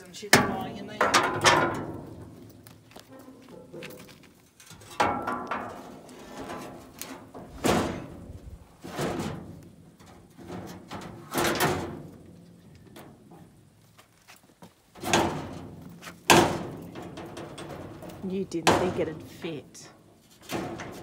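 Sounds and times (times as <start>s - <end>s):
loud metal clanks: 0.4s - 2.3s
light metal knocks and rattles: 14.6s - 19.2s.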